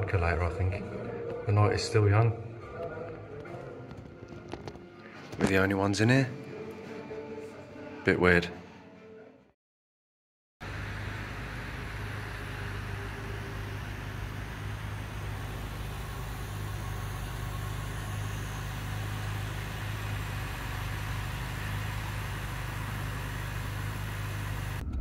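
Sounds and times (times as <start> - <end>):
car engine idling: 10.6 - 24.8.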